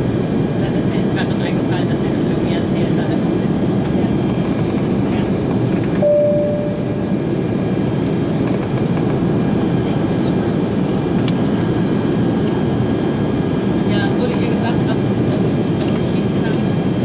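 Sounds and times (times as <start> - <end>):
airliner cabin drone: 0.0 - 17.0
short chime: 6.0 - 7.1.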